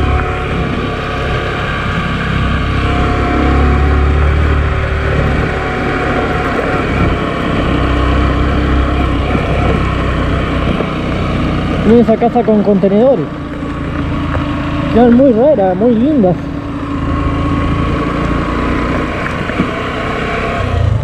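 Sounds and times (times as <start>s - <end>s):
motorcycle engine running: 0.0s - 21.0s
wind rumble on microphone: 1.9s - 12.8s.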